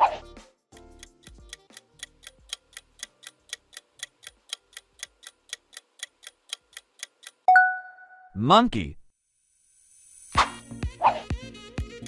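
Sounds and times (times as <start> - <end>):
clock ticking: 0.8 - 7.5.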